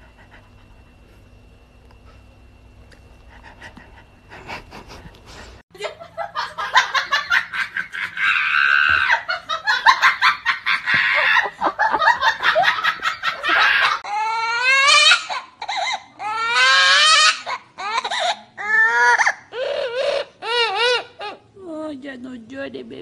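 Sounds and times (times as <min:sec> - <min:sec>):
person laughing hard: 0:05.8 - 0:14.0
parrot mimicking crying baby: 0:13.4 - 0:21.5.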